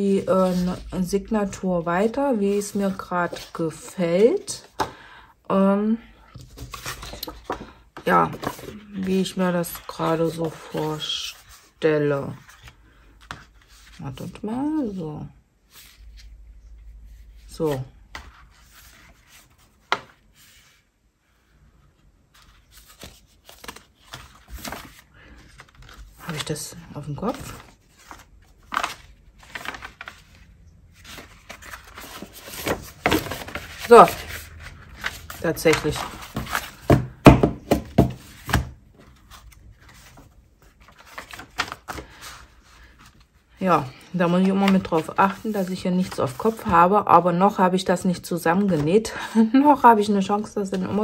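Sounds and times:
paper rustling: 0:00.0 - 0:05.0, 0:06.3 - 0:14.0, 0:17.1 - 0:47.0, 0:48.0 - 0:51.0
paper and card tapping on tabletop: 0:36.8 - 0:38.6.

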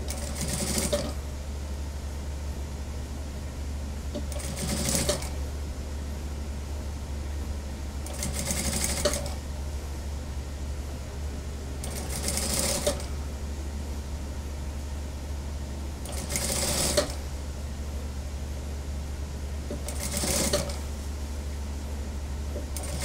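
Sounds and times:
steady low hum: 0:00.0 - 0:23.0
sewing machine stitching: 0:00.1 - 0:01.2, 0:04.2 - 0:05.3, 0:08.1 - 0:09.4, 0:11.8 - 0:13.1, 0:16.1 - 0:17.2, 0:19.7 - 0:20.8, 0:22.7 - 0:23.0.

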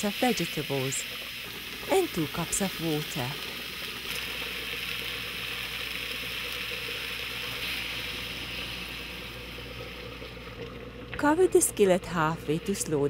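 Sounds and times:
food sizzling in a skillet: 0:00.0 - 0:10.1
water being poured: 0:00.0 - 0:13.0.

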